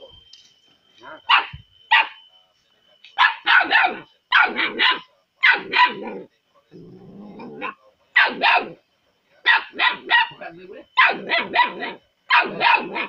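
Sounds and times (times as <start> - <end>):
puppy yapping barks: 1.0 - 2.2, 3.2 - 6.1, 7.6 - 8.8, 9.4 - 10.4, 11.0 - 13.0
puppy low growl: 6.0 - 7.8.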